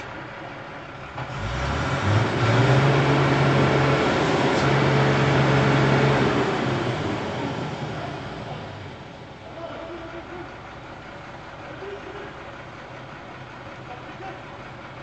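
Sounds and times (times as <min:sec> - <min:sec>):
vehicle engine revving: 0:01.0 - 0:09.1.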